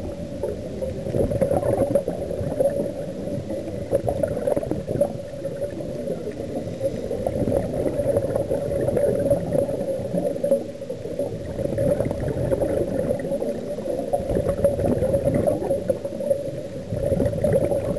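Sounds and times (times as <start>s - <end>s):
underwater regulator breathing and bubbles: 0.0s - 17.9s.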